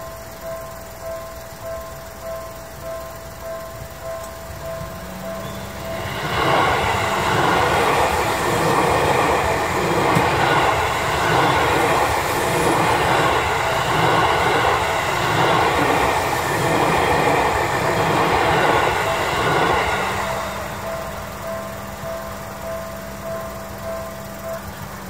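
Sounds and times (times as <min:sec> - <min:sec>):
train wheels rushing on rail: 0:00.0 - 0:25.0.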